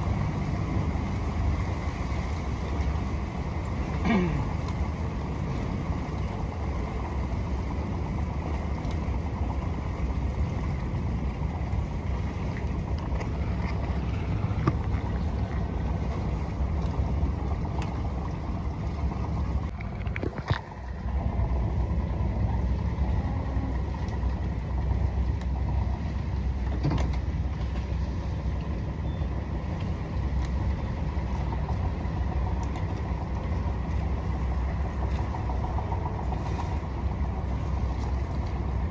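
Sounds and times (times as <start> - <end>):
motorboat engine running: 0.0 - 38.9.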